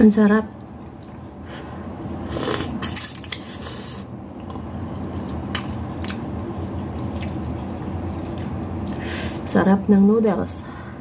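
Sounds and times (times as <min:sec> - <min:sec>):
steady low hum: 0:00.0 - 0:11.0
person slurping noodles: 0:02.2 - 0:04.1
wet chewing smacks: 0:05.2 - 0:09.0.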